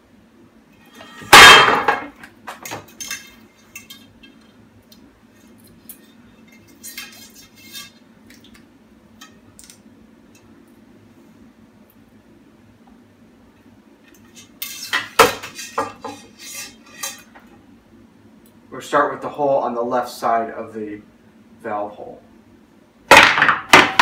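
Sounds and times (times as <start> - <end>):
bicycle wheel parts clanking: 0.9 - 4.5.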